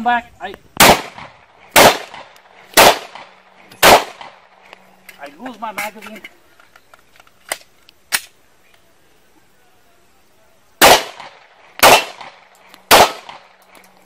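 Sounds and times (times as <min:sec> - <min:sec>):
loud pistol shots: 0:00.8 - 0:04.6, 0:10.8 - 0:13.6
pistol reload clicks: 0:06.7 - 0:08.4.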